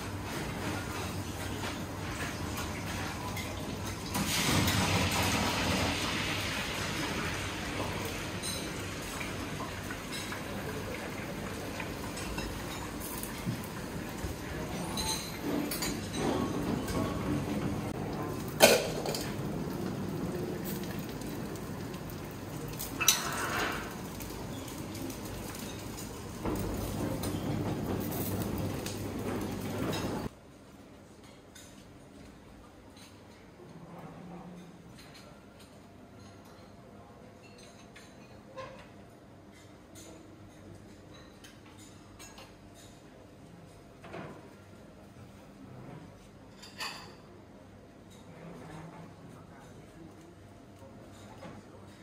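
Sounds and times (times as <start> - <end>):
restaurant background din: 0.0 - 52.0
tableware clinks: 14.6 - 17.2, 46.5 - 47.3.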